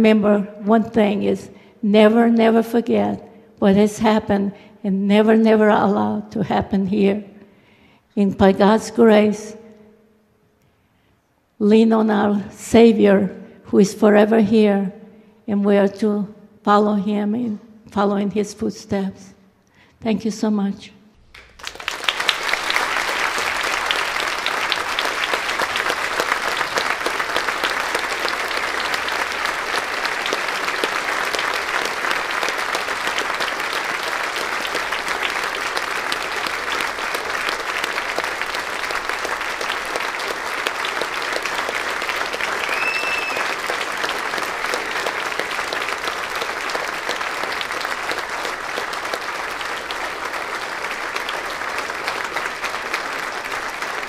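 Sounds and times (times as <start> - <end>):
audience clapping: 21.3 - 54.0.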